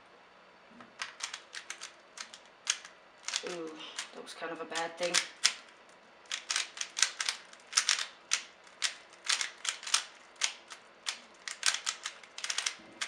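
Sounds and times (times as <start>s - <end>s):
plastic puzzle cube clicking: 1.0s - 4.1s, 5.0s - 5.7s, 6.3s - 12.8s.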